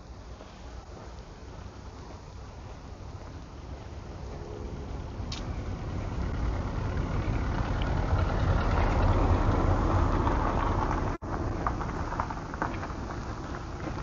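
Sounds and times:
low rumble: 3.4 - 14.0
car driving past: 4.2 - 14.0.

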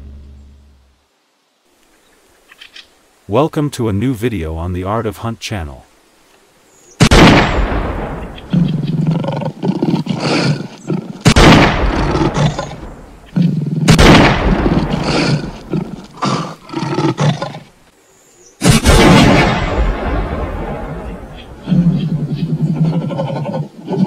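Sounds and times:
lions growling and roaring: 8.2 - 17.7, 20.6 - 24.0.

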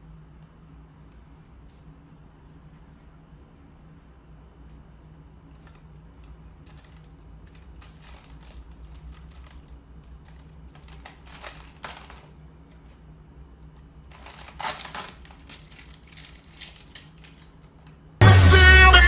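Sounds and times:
plastic packaging crinkling: 6.6 - 13.0, 14.0 - 18.0.

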